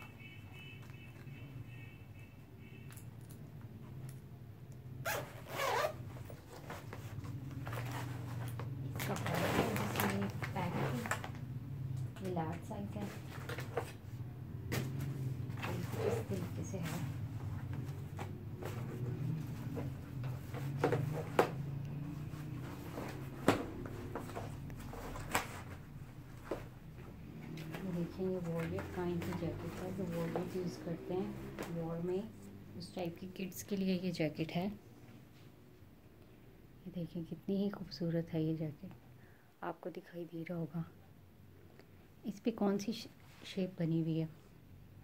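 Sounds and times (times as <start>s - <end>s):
zipper pulled: 5.0s - 11.4s, 15.5s - 17.2s
plastic pads clacking and rustling: 6.3s - 14.0s, 14.6s - 30.6s.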